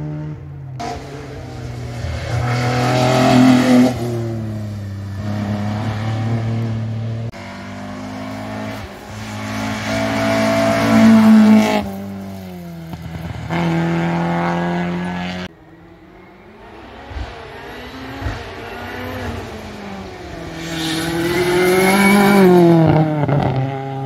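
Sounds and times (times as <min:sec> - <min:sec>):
car accelerating past: 0:00.0 - 0:15.5
car engine at high revs: 0:00.0 - 0:24.0.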